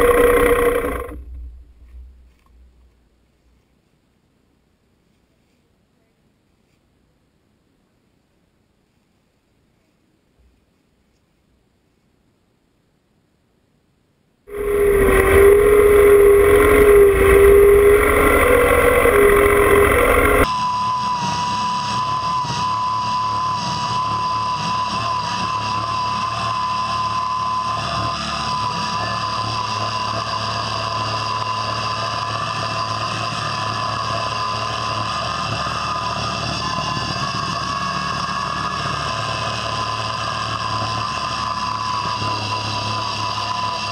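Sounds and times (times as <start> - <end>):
tractor diesel engine running: 0.0 - 3.0, 14.5 - 20.5
steady whine: 0.0 - 3.1, 14.5 - 43.9.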